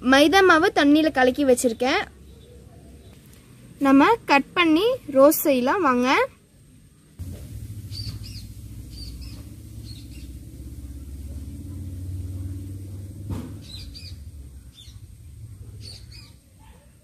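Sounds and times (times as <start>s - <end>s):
small birds chirping: 1.4s - 3.5s, 7.2s - 16.6s
low rumble: 7.2s - 15.8s.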